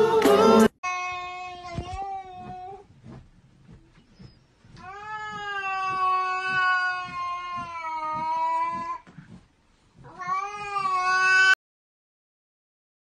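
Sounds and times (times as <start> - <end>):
cat yowling: 4.8 - 9.0, 10.1 - 11.6.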